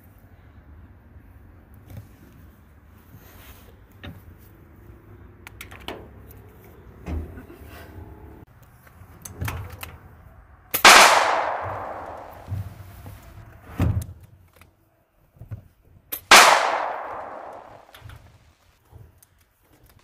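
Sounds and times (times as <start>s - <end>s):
pistol shots echoing: 10.8s - 12.6s, 16.3s - 17.9s.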